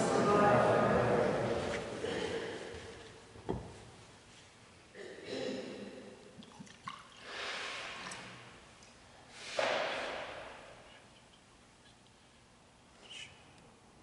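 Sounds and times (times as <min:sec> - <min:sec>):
soft hissing: 0:07.2 - 0:08.6, 0:10.7 - 0:13.8.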